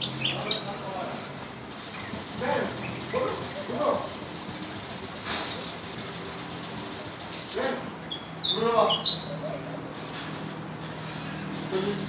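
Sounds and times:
sanding pad rubbing plastic: 0.0 - 7.6, 11.5 - 12.0.

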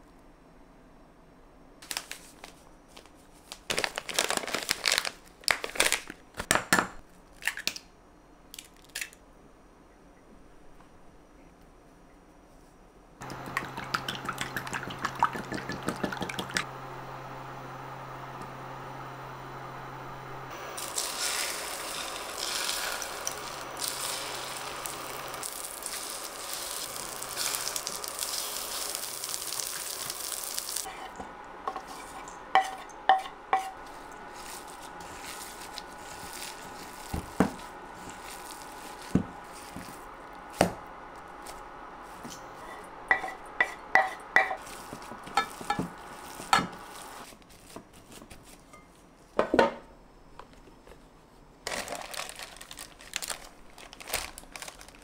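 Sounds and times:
oil sizzling in frying pan: 13.2 - 47.3.

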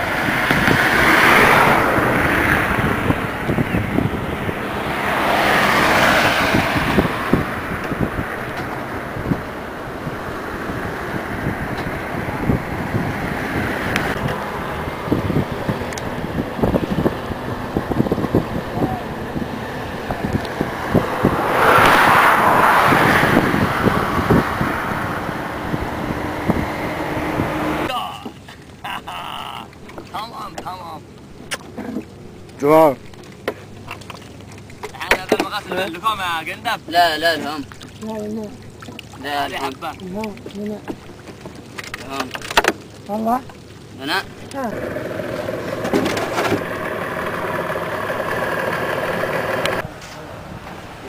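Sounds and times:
wind buffeting microphone: 0.0 - 27.9
car road noise: 0.0 - 51.0
low thumps: 1.9 - 27.9.

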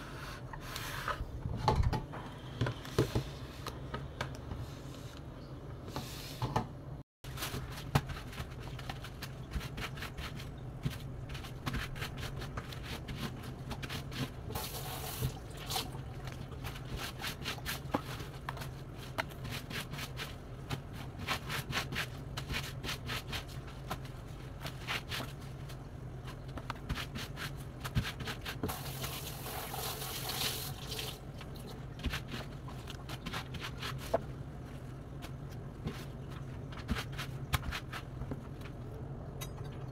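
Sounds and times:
tap water running: 14.5 - 16.2, 28.7 - 31.3.

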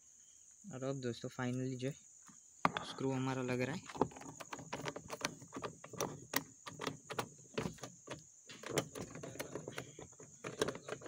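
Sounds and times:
screw clicking and scraping into plastic: 3.9 - 11.0.

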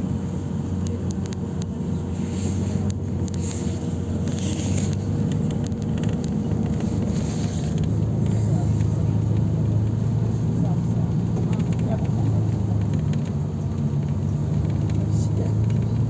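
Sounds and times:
bus cabin drone: 0.0 - 16.0
rear axle hum: 0.0 - 16.0
light clicks and rattles: 2.4 - 16.0.

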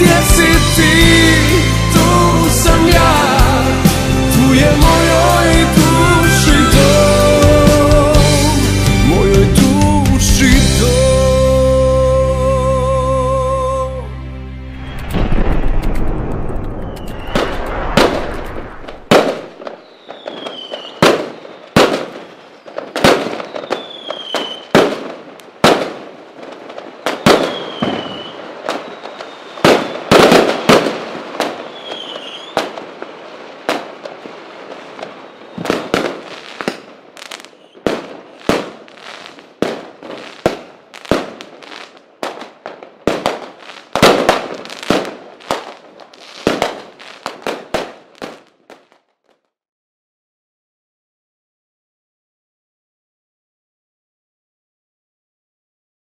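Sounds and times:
falling firework whistles: 14.8 - 26.0, 26.7 - 42.0
firework shells bursting: 15.0 - 49.2.

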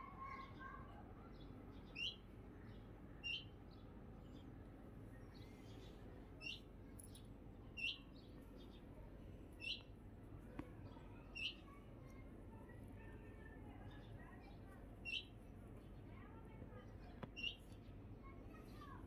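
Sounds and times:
faint background noise: 0.0 - 19.0
bird chirping: 1.8 - 2.2, 3.2 - 3.5, 5.4 - 7.2, 7.8 - 8.7, 9.6 - 9.9, 11.3 - 11.7, 15.0 - 15.3, 17.3 - 17.8.

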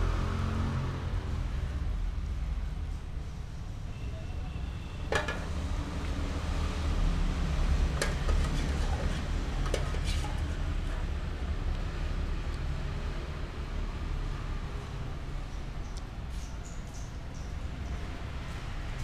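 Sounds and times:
metal utensil scraping saucepan: 5.1 - 5.6, 7.9 - 11.0.

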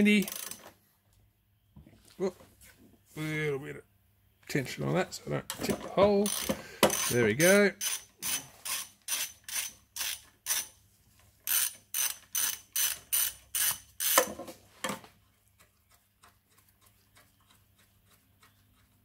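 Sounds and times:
ratchet wrench clicking: 0.2 - 0.6, 6.2 - 10.8, 11.5 - 14.3.

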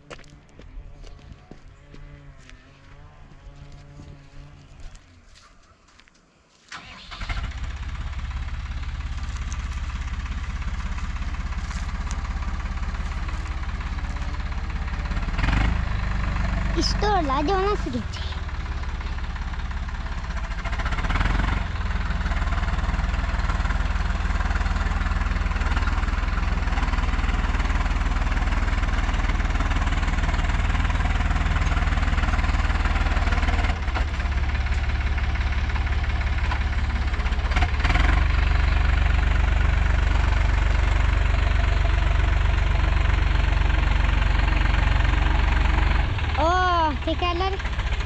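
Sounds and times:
tractor diesel engine running: 6.7 - 48.0.

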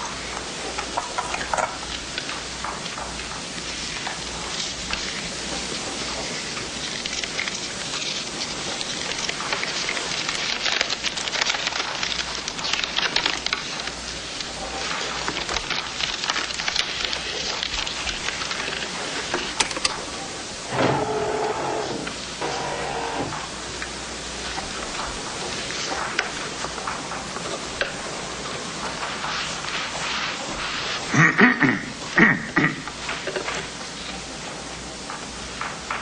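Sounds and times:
paper wrapper crinkling: 0.6 - 20.3.

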